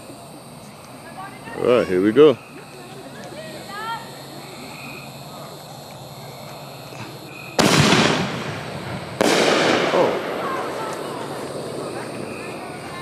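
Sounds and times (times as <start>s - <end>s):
firework shots: 5.0s - 13.0s.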